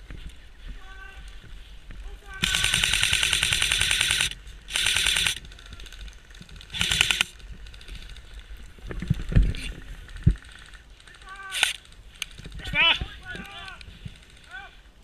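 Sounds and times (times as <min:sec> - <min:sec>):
airsoft rifle firing bursts: 0:02.4 - 0:08.2.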